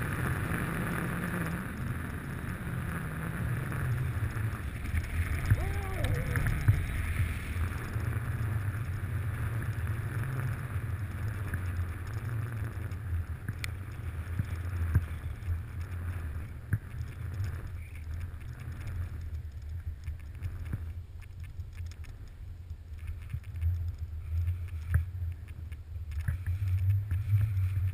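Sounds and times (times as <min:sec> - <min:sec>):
wind rumbling on microphone: 0:00.0 - 0:27.9
skis sliding on snow: 0:03.4 - 0:19.2, 0:26.2 - 0:27.9.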